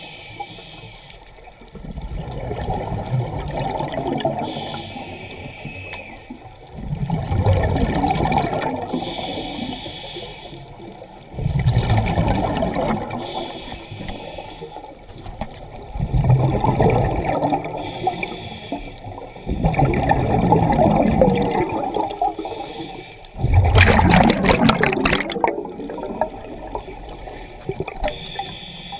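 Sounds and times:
regulator inhale hiss: 0.0s - 1.4s, 4.4s - 6.4s, 8.9s - 11.0s, 13.1s - 15.1s, 17.7s - 19.5s, 22.3s - 23.4s, 26.8s - 28.9s
bubbles crackling: 1.4s - 9.9s, 10.5s - 28.5s
rumble of exhaust bubbles: 1.7s - 4.4s, 6.8s - 8.9s, 11.4s - 13.2s, 15.7s - 17.8s, 19.5s - 22.4s, 23.4s - 28.0s.

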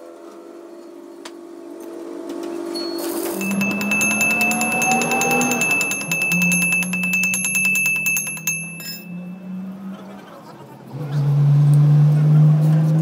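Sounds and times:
steel gear ringing: 2.8s - 9.7s
hammer tapping on steel: 3.4s - 9.2s.

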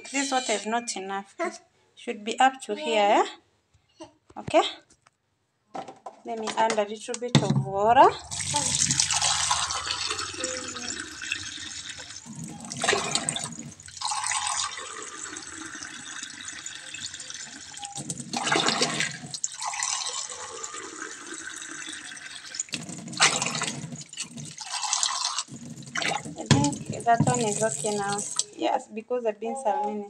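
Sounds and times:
water pouring and splashing: 8.1s - 28.6s.

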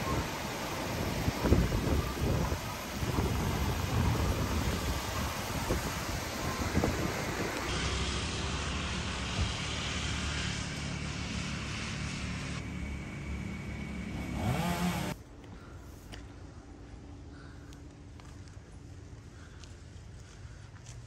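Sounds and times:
vehicle engine running: 7.6s - 15.2s.

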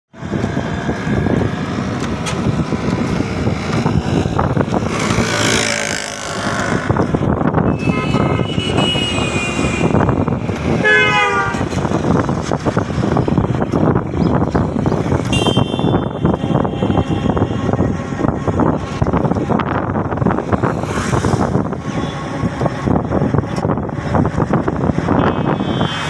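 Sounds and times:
road and wind rumble: 0.1s - 26.0s
horn with bending pitch: 7.7s - 10.1s, 10.8s - 11.7s, 15.3s - 17.6s
vehicle horn steady tone: 7.8s - 10.0s, 10.8s - 11.7s, 15.3s - 17.6s
vehicle rushing past: 20.4s - 21.8s.

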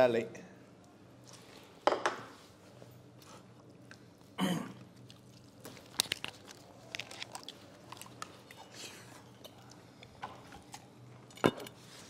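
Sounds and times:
chewing: 3.2s - 10.9s.

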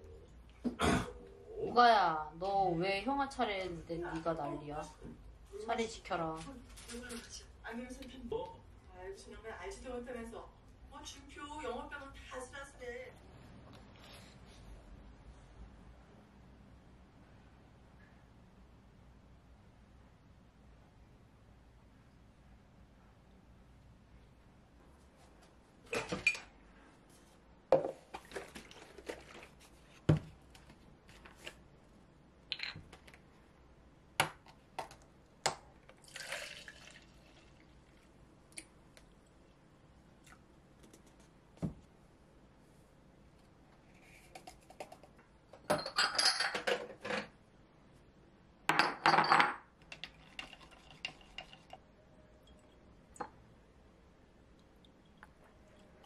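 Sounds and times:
milk being poured: 35.8s - 38.2s
glass jars clinking: 45.7s - 46.9s
stirring: 49.8s - 52.8s.

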